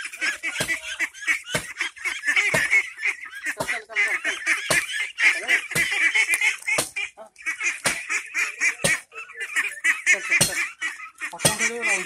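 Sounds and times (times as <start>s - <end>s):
ducklings peeping: 0.0s - 12.0s
sharp tapping knocks: 0.5s - 0.8s, 1.4s - 1.8s, 2.4s - 2.8s, 4.6s - 5.0s, 5.7s - 7.0s, 7.8s - 8.2s, 8.8s - 9.1s, 10.4s - 10.7s, 11.4s - 11.8s.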